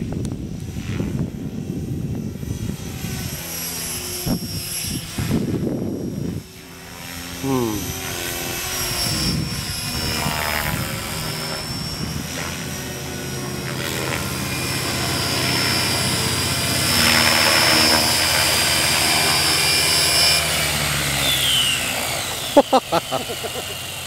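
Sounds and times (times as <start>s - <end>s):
electric motor whine: 0.0s - 24.0s
rotor blades chopping: 12.3s - 24.0s.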